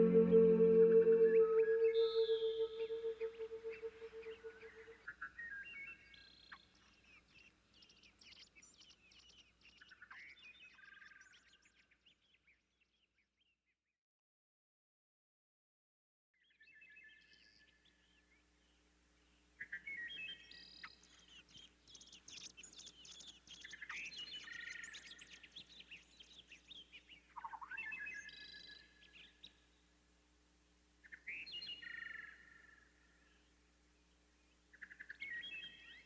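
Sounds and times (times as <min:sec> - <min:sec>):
songbirds chirping and singing: 0:00.0 - 0:12.4, 0:19.6 - 0:29.6, 0:34.5 - 0:36.0.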